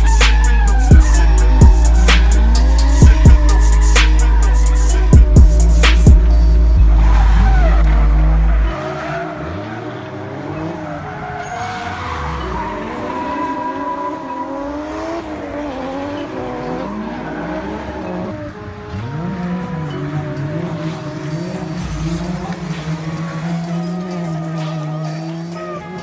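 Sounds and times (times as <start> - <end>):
heavy phonk bass: 0.0 - 8.8
car engines revving: 0.0 - 26.0
tyres squealing and skidding: 0.0 - 26.0.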